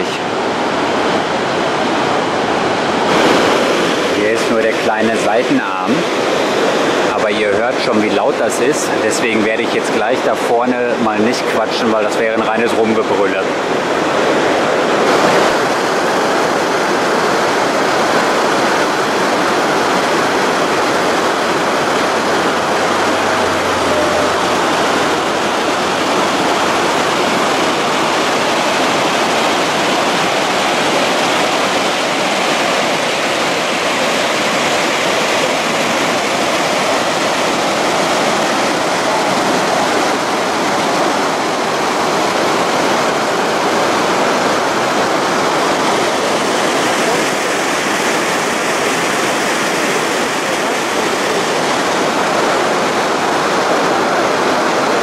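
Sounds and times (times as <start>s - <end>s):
waterfall rushing over rock: 0.0s - 55.0s.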